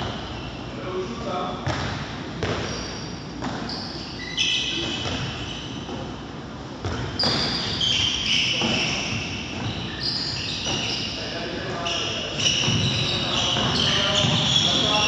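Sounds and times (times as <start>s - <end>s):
shoes squealing on floor: 0.0s - 1.1s, 2.5s - 6.2s, 6.8s - 15.0s
ball bouncing on wooden floor: 12.6s - 14.5s.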